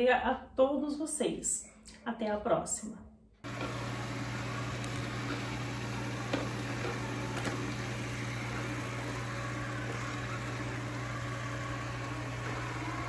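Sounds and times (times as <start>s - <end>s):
robot vacuum cleaner running: 3.4s - 13.0s.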